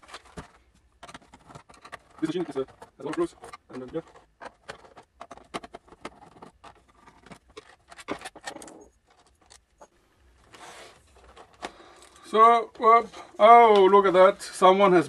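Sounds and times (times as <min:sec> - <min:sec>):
scratchy rustle: 0:10.5 - 0:11.6.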